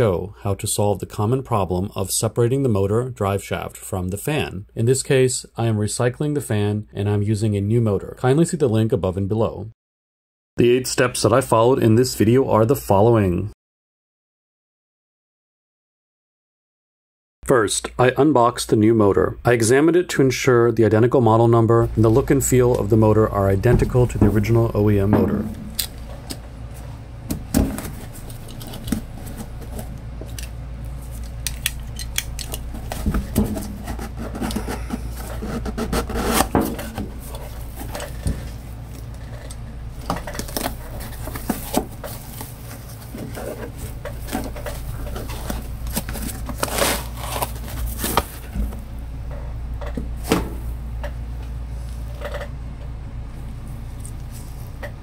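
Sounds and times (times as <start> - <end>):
steady low hum: 17.5 - 55.0
hands handling cardboard packaging: 23.7 - 39.3, 39.9 - 48.8.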